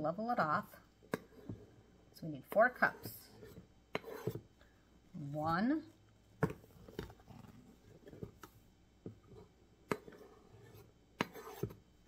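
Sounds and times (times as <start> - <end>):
knife scraping flour level: 2.6 - 4.4, 9.9 - 11.8.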